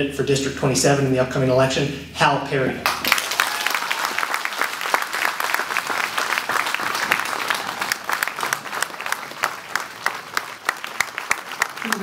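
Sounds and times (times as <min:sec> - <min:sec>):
people applauding: 0:02.9 - 0:12.0.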